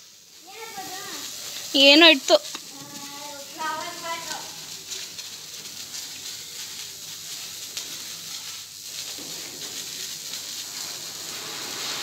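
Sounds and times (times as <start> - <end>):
firework fizzing hiss: 0.0 - 12.0.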